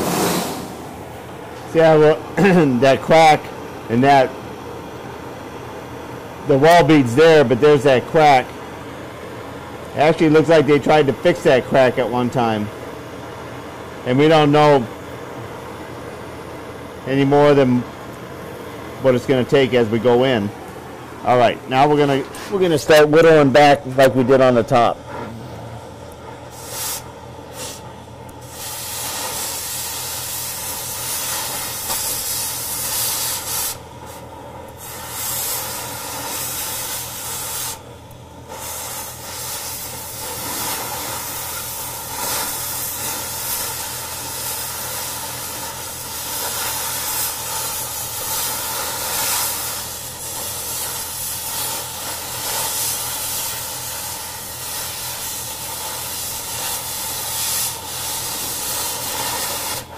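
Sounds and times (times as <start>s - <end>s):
cutting torch hissing: 0.0s - 4.3s, 24.4s - 59.9s.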